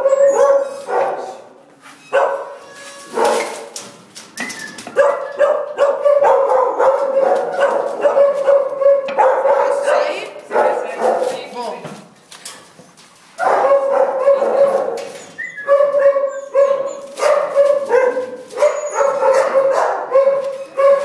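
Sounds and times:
dog whining: 0:00.0 - 0:00.9, 0:14.6 - 0:19.8
dog yipping: 0:00.0 - 0:01.2, 0:02.0 - 0:03.6, 0:04.4 - 0:11.2, 0:13.4 - 0:21.0.

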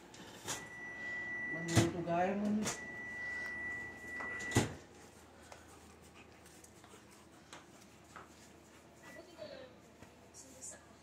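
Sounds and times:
faint clicks and scuffs: 0:04.8 - 0:11.0.

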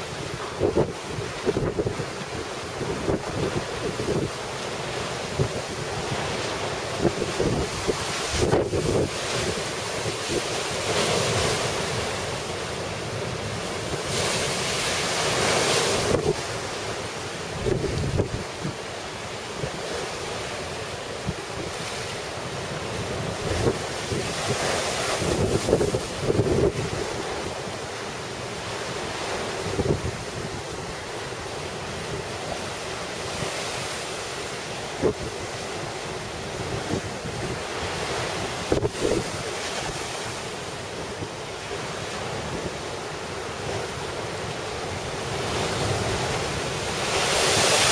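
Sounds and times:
wind on microphone: 0:00.0 - 0:12.0, 0:13.9 - 0:16.7, 0:17.5 - 0:18.9, 0:22.8 - 0:27.8, 0:28.7 - 0:31.2, 0:32.0 - 0:43.0
surf crashing against seawall: 0:00.0 - 0:47.9
wind buffeting microphone: 0:05.3 - 0:10.6, 0:17.6 - 0:18.8, 0:22.9 - 0:27.5, 0:35.0 - 0:40.2.

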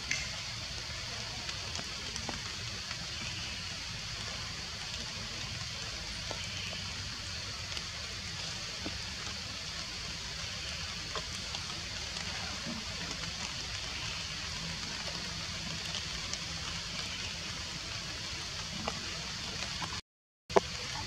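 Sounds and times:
forest hiss: 0:00.0 - 0:21.0.

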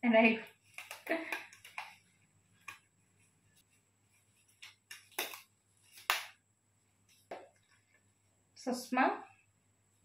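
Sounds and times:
sharp handling sounds: 0:03.5 - 0:06.4.

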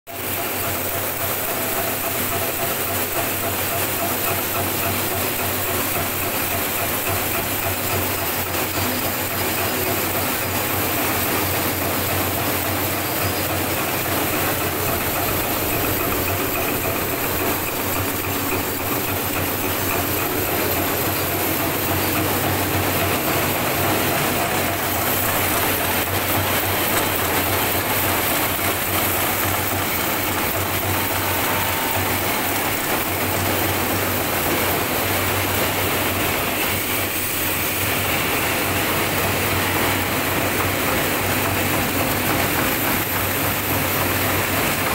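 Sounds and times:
metallic clatter of machines: 0:00.1 - 0:44.9.

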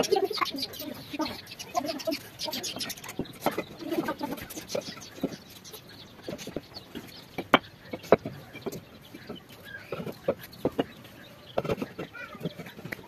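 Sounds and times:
chickens calling: 0:00.0 - 0:13.0
bricks clacking: 0:06.2 - 0:13.0.

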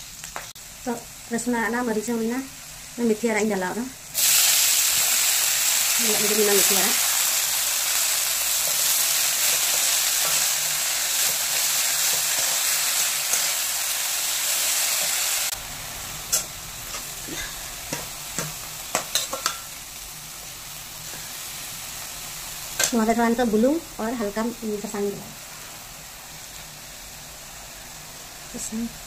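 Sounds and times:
leaves sizzling in a pan: 0:00.0 - 0:29.0
spatula tapping and scraping pan: 0:16.3 - 0:19.7.

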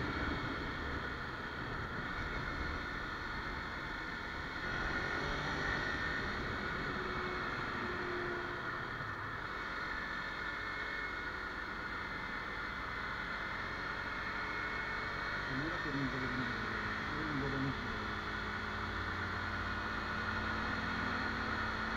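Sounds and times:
wind rushing over microphone: 0:00.0 - 0:07.9.

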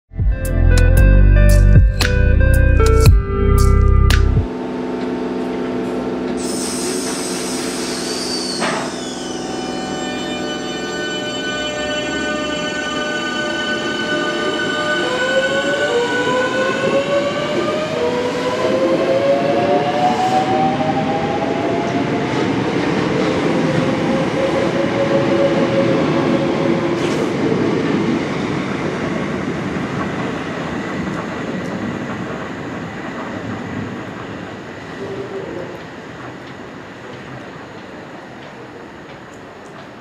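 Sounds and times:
train motors whining: 0:04.6 - 0:16.4.

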